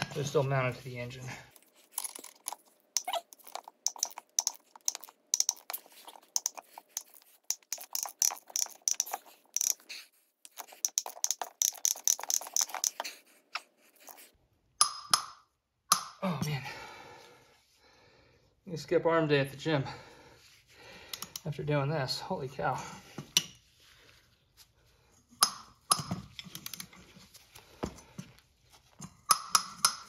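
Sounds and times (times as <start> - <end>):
ratchet wrench clicking: 3.0 - 9.9, 10.5 - 13.0.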